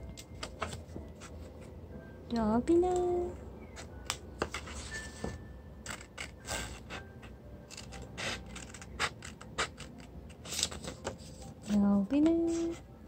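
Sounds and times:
scissors cutting paper: 0:05.8 - 0:07.0, 0:07.7 - 0:12.8.

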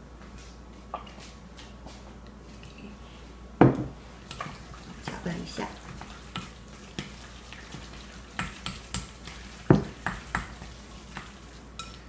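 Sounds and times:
stirring wet minced meat: 0:04.1 - 0:12.0.

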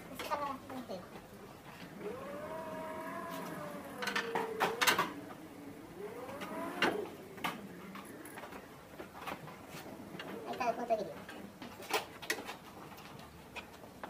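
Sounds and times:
wavering voice-like tone: 0:02.0 - 0:09.3.

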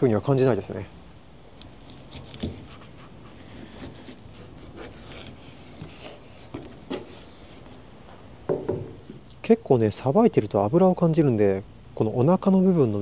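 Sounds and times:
knife cutting fish: 0:01.6 - 0:07.3.

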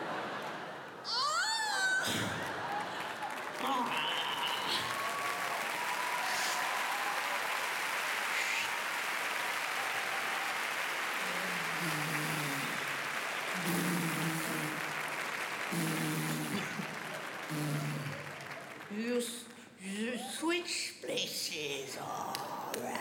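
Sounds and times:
audience applauding: 0:01.9 - 0:19.0.

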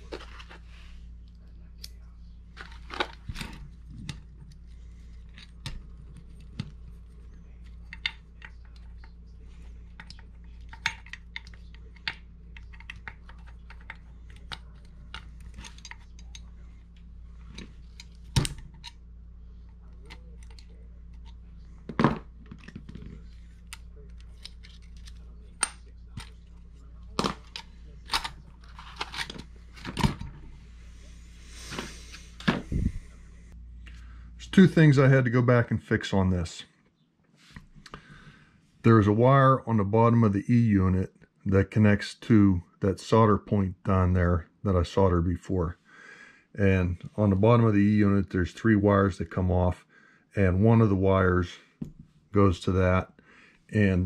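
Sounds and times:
steady low hum: 0:00.0 - 0:36.8.

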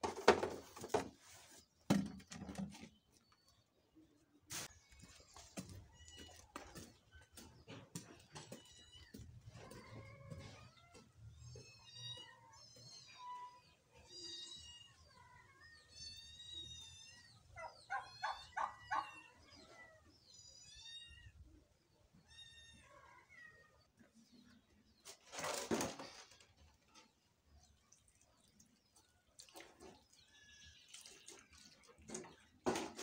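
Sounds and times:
poultry calling: 0:16.8 - 0:20.0.

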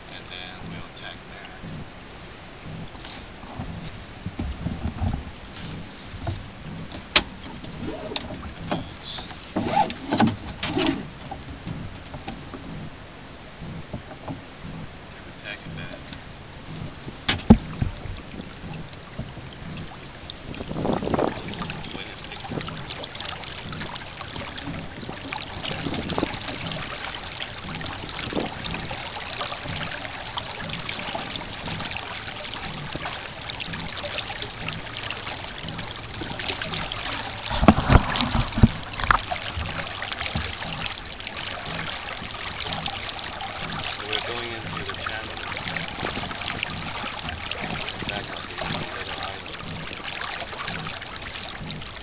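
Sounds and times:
thumps on a boat: 0:00.0 - 0:52.0
water lapping along a hull: 0:00.0 - 0:52.0
small knocks: 0:15.7 - 0:19.4.

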